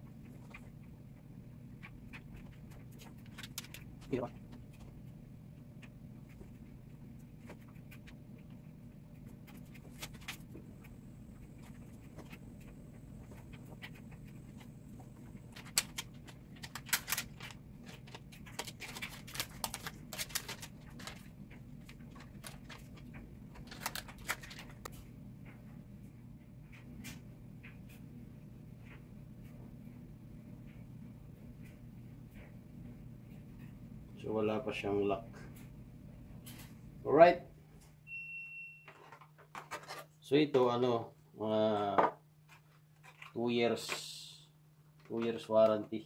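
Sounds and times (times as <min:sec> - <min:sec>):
steady low hum: 0:00.0 - 0:46.0
handling phone box and paper: 0:11.6 - 0:24.9.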